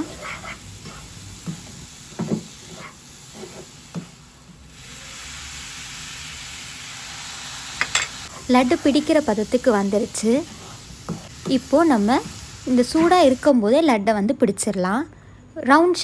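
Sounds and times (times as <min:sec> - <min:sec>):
wooden spatula scraping a pan: 0:00.0 - 0:04.2
mixture sizzling: 0:00.0 - 0:13.5.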